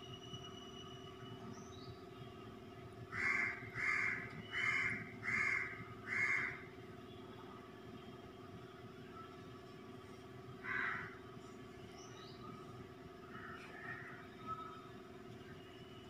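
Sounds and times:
crow cawing: 3.1s - 6.6s, 10.6s - 11.2s.

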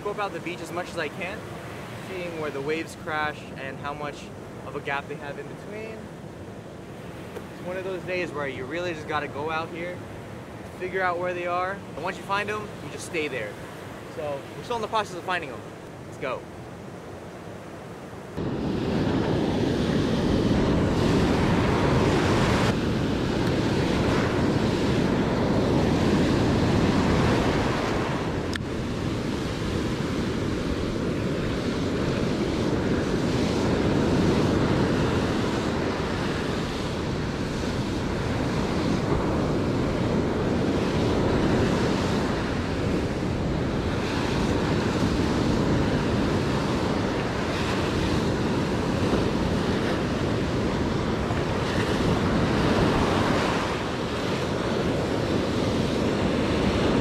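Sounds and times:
ocean surf breaking: 0.0s - 57.0s
wind buffeting microphone: 18.4s - 57.0s.

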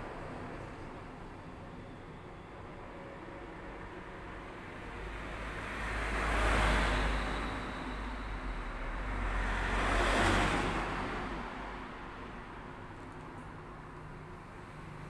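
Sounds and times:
vehicles passing: 3.0s - 15.0s.

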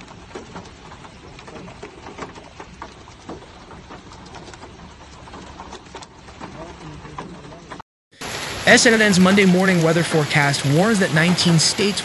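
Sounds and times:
hail and rain on car: 0.0s - 12.0s
steady rushing noise: 5.7s - 12.0s.

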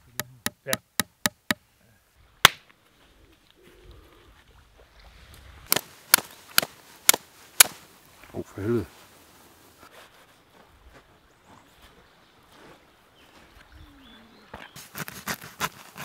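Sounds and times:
flint striking steel: 0.0s - 1.6s, 5.7s - 7.8s
hammer tapping nails into wood: 0.0s - 1.6s.

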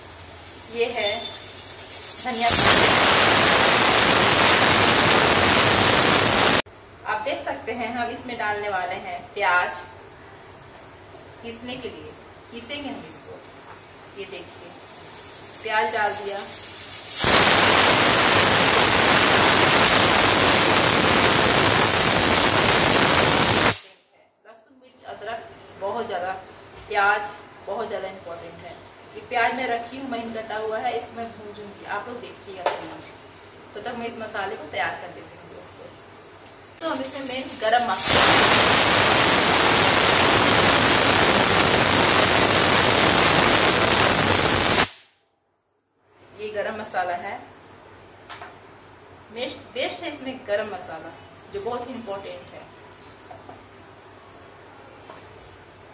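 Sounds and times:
pressure cooker steam hiss: 0.0s - 6.7s, 13.4s - 24.1s, 36.7s - 45.2s.

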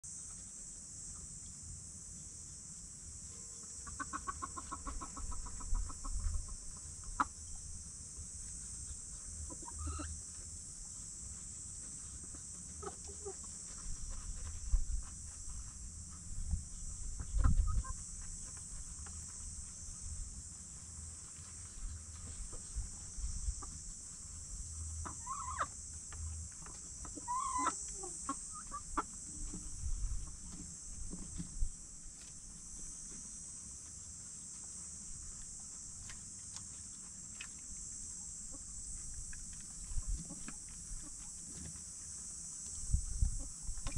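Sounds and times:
chickens clucking: 3.8s - 7.5s, 9.4s - 10.2s, 12.2s - 14.5s, 17.2s - 18.2s, 25.0s - 25.8s, 26.6s - 29.5s, 39.9s - 41.3s
pecking and scratching: 11.4s - 16.2s, 38.5s - 42.8s.

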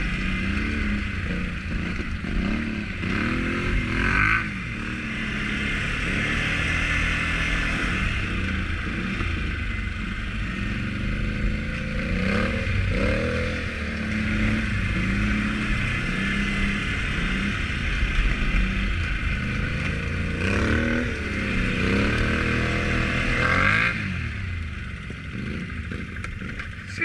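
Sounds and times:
atv engine revving: 0.0s - 27.0s.

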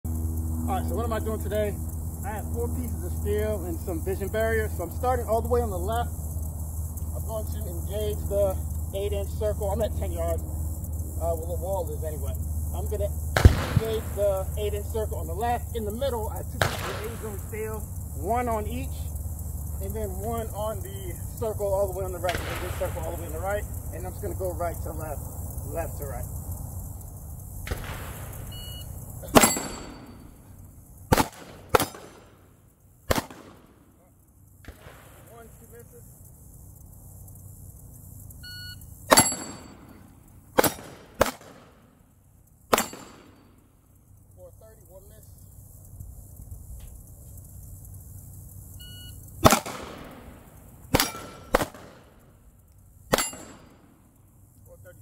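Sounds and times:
pistol shots: 13.4s - 14.2s, 16.6s - 17.2s, 27.6s - 28.4s, 29.2s - 30.2s, 31.1s - 32.4s, 33.1s - 33.8s, 40.6s - 41.8s, 42.7s - 43.4s, 49.4s - 52.2s, 53.1s - 53.8s
short electronic beep: 28.5s - 28.9s, 38.4s - 38.8s, 48.8s - 49.2s.

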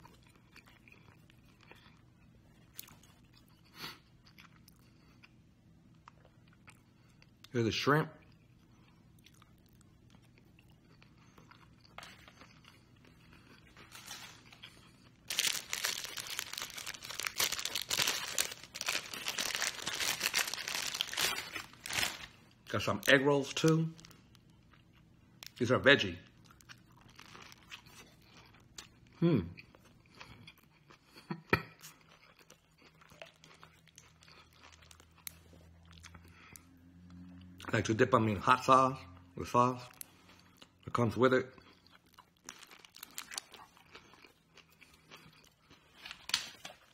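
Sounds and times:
chewing crunching: 0.0s - 7.5s, 8.2s - 25.6s, 26.2s - 37.7s, 41.5s - 46.9s
packaging crinkling and rustling: 13.8s - 24.5s, 42.5s - 43.7s, 46.0s - 46.9s.

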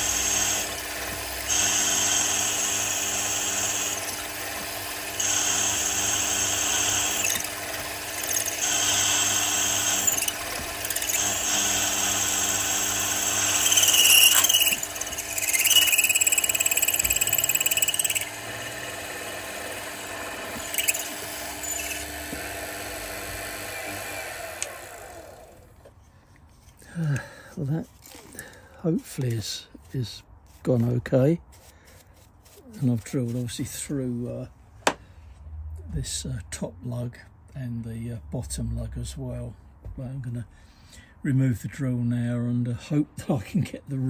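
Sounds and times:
drill squealing: 0.0s - 22.2s
drill cutting metal hissing: 0.0s - 24.9s
milling machine spindle hum: 0.0s - 25.5s.

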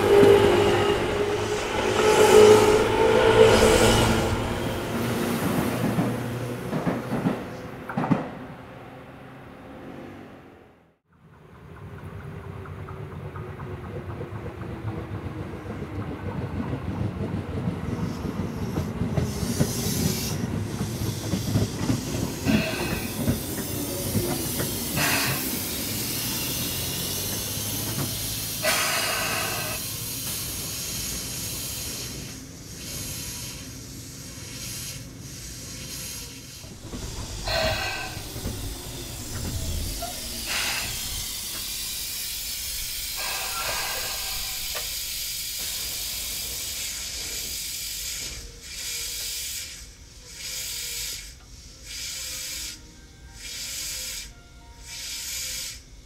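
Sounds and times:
compressed air hissing: 0.0s - 6.0s, 18.1s - 56.0s
electric train motor tone: 0.0s - 6.3s, 21.2s - 33.7s, 34.4s - 56.0s
rail noise: 0.0s - 56.0s.

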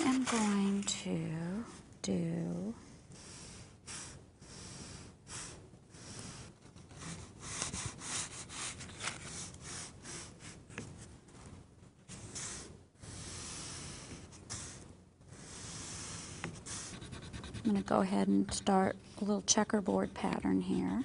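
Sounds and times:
tool scratching scratchboard: 15.4s - 21.0s.

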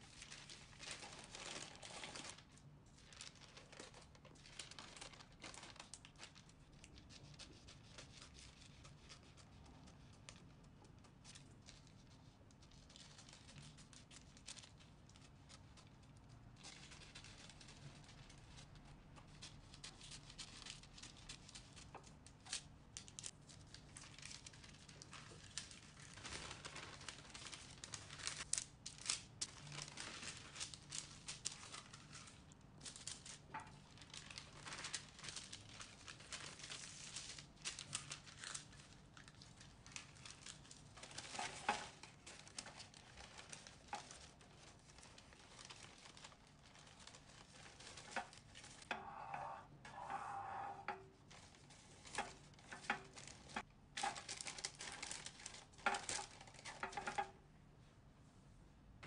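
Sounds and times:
parchment paper crinkling: 0.0s - 57.4s.

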